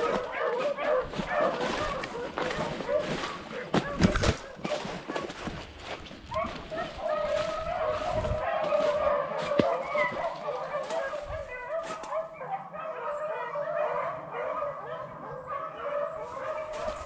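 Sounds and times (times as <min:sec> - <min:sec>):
hounds baying: 0:00.0 - 0:17.0.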